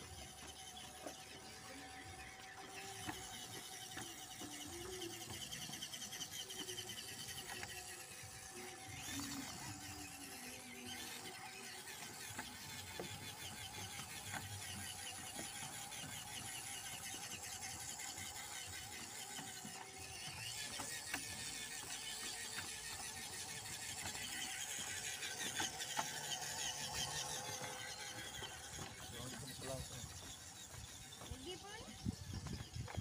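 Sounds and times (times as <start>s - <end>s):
small electric motor whirring: 0.0s - 33.0s.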